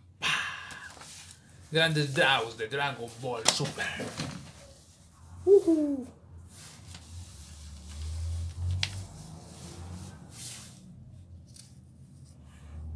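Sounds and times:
paper rustling: 0.8s - 5.1s, 6.5s - 10.8s.

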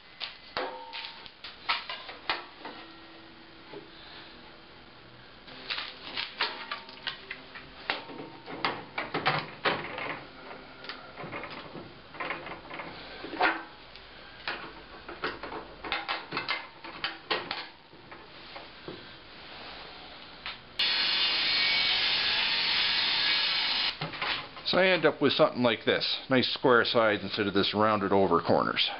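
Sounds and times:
table saw running: 20.8s - 24.0s.

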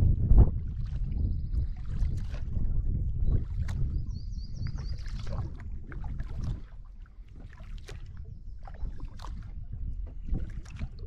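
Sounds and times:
low rumble: 0.0s - 4.8s
paddle splashing in water: 0.3s - 11.0s.

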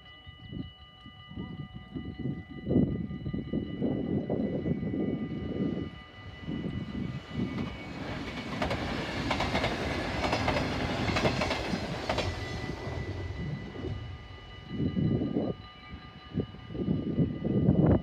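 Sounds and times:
electric train passing: 1.2s - 18.0s
wheels clicking over rail joints: 7.5s - 14.7s.

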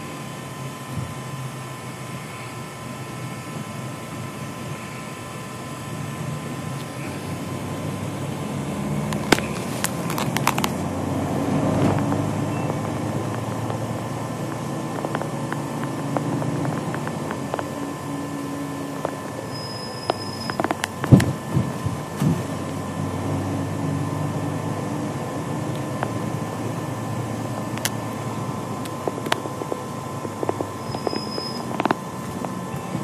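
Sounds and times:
engine and road rumble: 0.0s - 33.0s
sharp clicks and rattles: 9.1s - 10.9s, 11.8s - 17.8s, 20.1s - 22.4s, 28.8s - 32.6s.

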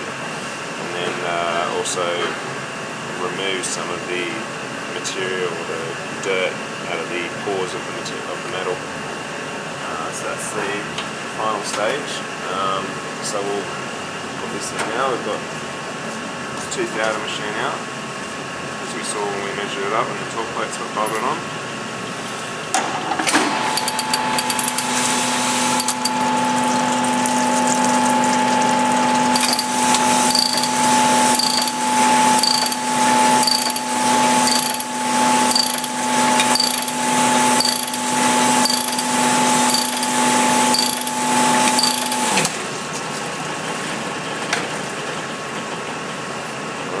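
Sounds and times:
steady background hum: 0.0s - 47.0s
honing machine motor whine: 23.5s - 42.5s
hone stroke pulse: 29.3s - 42.4s.

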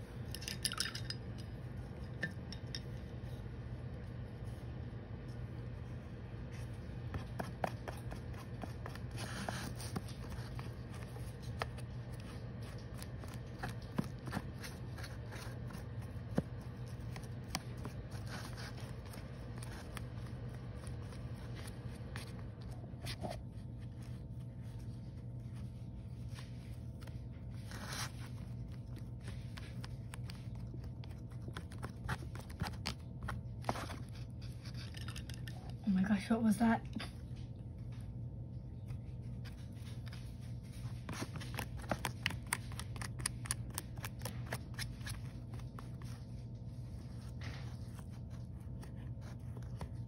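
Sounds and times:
steady low hum: 0.0s - 50.0s
paintbrush scraping and dabbing: 3.3s - 35.3s.

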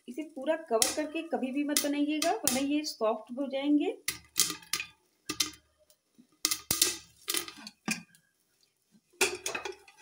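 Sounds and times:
popcorn popping in a pot: 0.1s - 2.9s, 4.0s - 5.7s, 6.3s - 8.2s, 9.2s - 10.0s.

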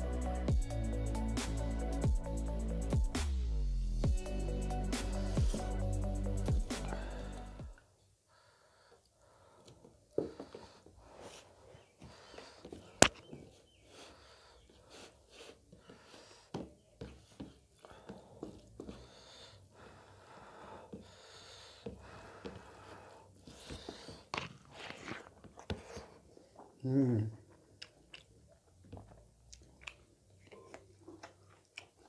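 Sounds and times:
chewing and mouth sounds: 24.4s - 32.0s.

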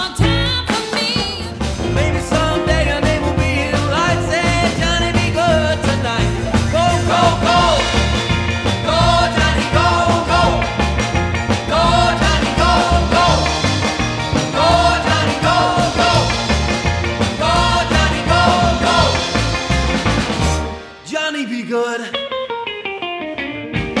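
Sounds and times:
person singing: 0.0s - 10.8s, 17.2s - 19.7s
rock and roll band playing: 0.0s - 24.0s.

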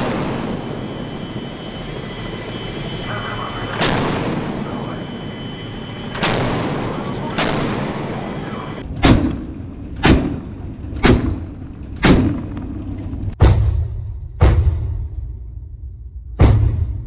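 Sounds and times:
deck gun firing: 9.0s - 11.4s.

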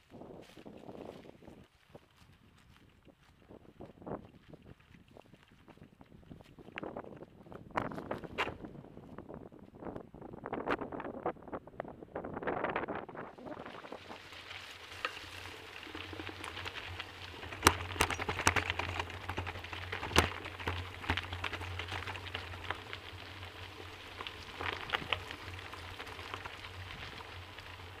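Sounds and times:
bicycle tyres crunching on gravel: 13.2s - 28.0s
clicks and rattles: 14.9s - 23.4s.

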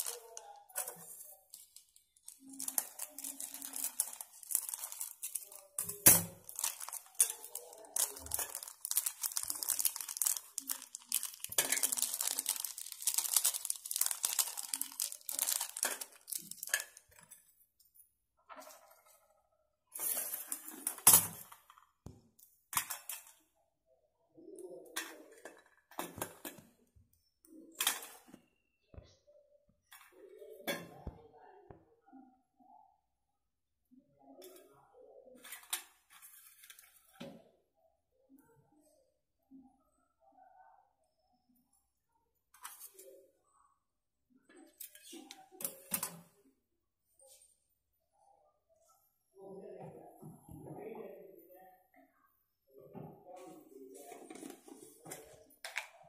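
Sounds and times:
nuts rustling in steel bowl: 0.0s - 17.0s
plastic packets crinkling: 0.0s - 17.3s.

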